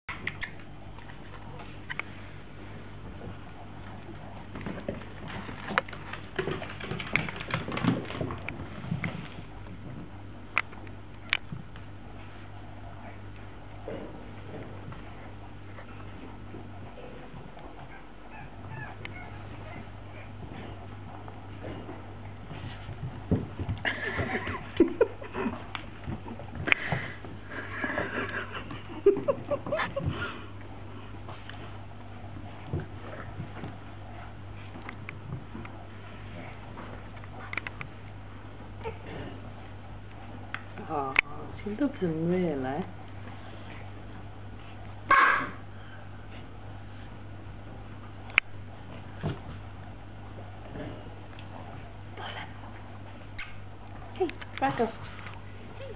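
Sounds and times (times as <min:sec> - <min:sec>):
paws scrabbling on floor: 0:00.1 - 0:45.1, 0:46.2 - 0:55.9
dog claws clicking on wooden floor: 0:04.6 - 0:09.0.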